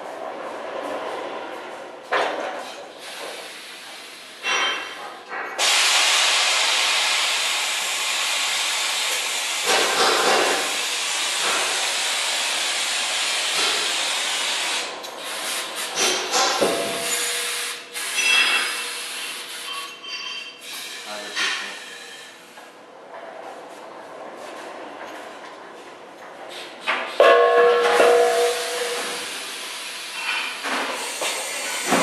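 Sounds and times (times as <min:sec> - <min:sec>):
vacuum lifter hissing air: 0:30.9 - 0:32.0.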